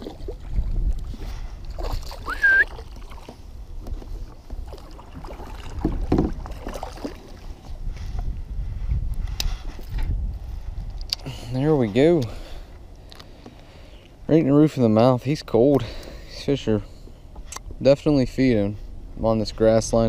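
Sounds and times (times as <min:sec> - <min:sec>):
wind noise: 0:00.0 - 0:12.4
water noise: 0:00.0 - 0:20.0.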